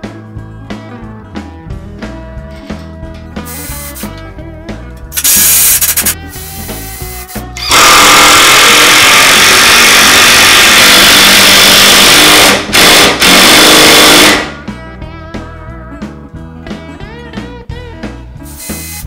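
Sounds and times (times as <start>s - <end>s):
impact driver driving screws: 7.6s - 13.9s.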